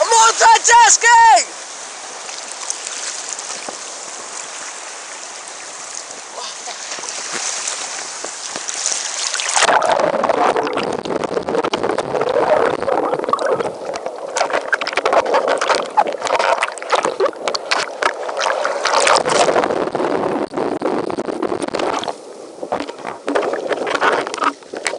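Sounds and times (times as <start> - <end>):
ocean surf hissing: 0.0 - 9.7
water sloshing and splashing: 1.6 - 20.0, 21.0 - 24.9.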